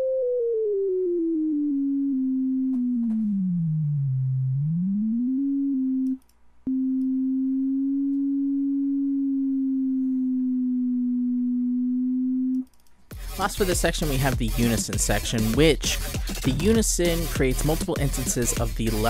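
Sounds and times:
sine-wave tone: 0:00.0 - 0:12.7
click: 0:06.0 - 0:06.4, 0:12.5 - 0:13.0.

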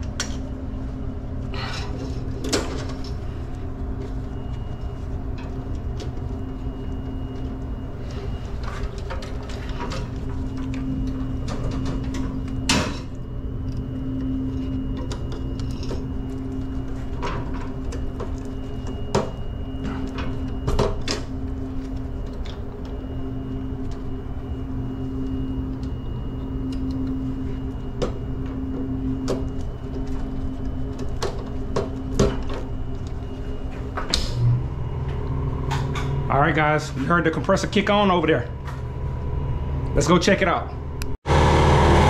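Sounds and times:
steady machine hum: 0:00.0 - 0:42.0
air compressor running: 0:41.2 - 0:42.0.

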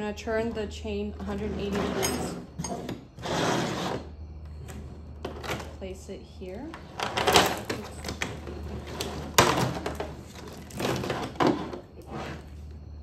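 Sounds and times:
metal chain rattling and clinking: 0:01.9 - 0:03.0.

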